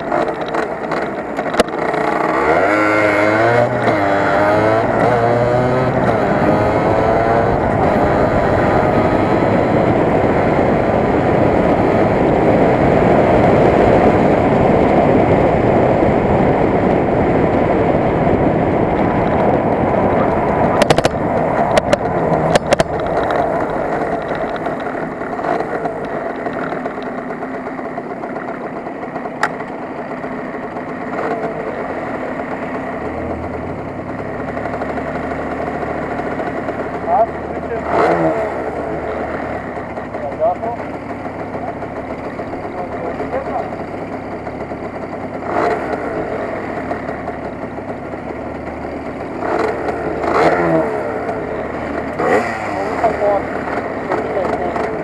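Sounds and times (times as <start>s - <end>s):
wind rushing over camera: 0.0s - 27.6s
two-stroke motorcycle engine: 0.0s - 55.0s
sharp knocks: 20.8s - 26.8s.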